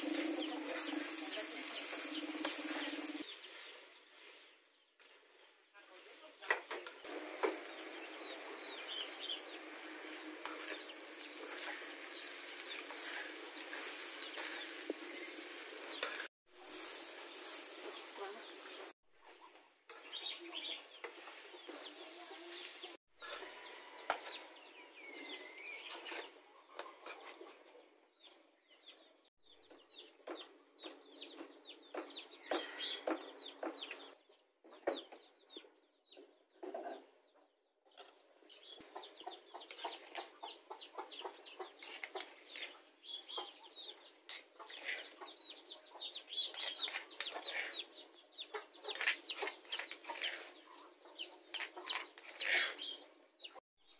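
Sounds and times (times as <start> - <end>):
chickens clucking: 0.0 - 3.4, 29.6 - 53.6.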